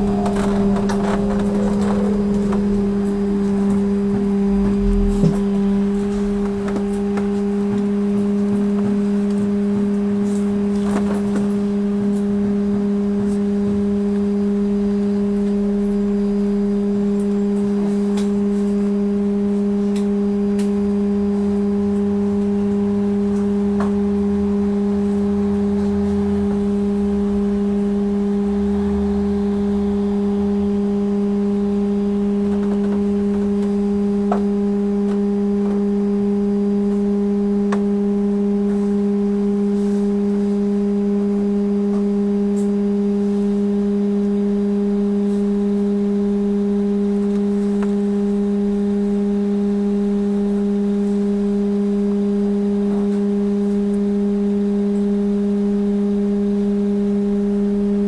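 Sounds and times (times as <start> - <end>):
passing traffic rumble: 0.0 - 10.2, 22.0 - 34.0
trolleybus electrical hum: 0.0 - 58.0.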